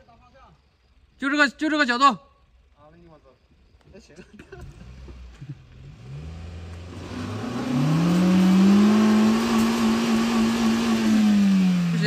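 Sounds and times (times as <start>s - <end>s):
car engine revving hard: 4.6s - 12.0s.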